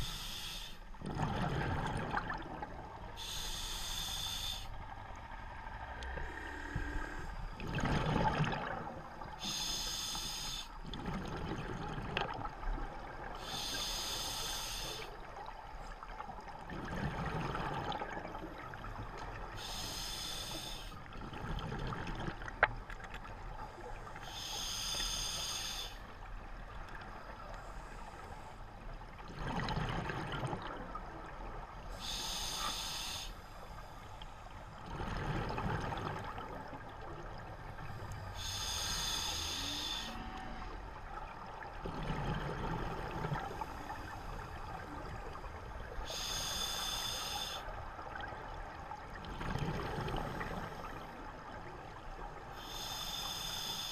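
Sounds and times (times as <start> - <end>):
regulator hissing inhale: 0.0 - 0.9, 3.2 - 4.8, 9.4 - 10.8, 13.4 - 15.2, 19.6 - 21.1, 24.2 - 26.1, 31.9 - 34.4, 37.8 - 40.6, 46.0 - 47.8, 52.5 - 53.9
exhaled bubbles burbling: 1.0 - 2.8, 7.5 - 9.2, 10.8 - 12.6, 16.6 - 18.8, 21.2 - 22.6, 29.3 - 31.0.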